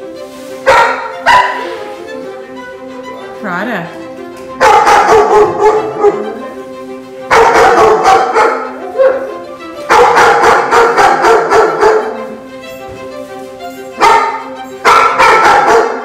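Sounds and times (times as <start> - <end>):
background music: 0.0 - 16.0
dog barking: 0.6 - 1.8, 4.6 - 6.3, 7.3 - 9.3, 9.9 - 12.2, 14.0 - 16.0.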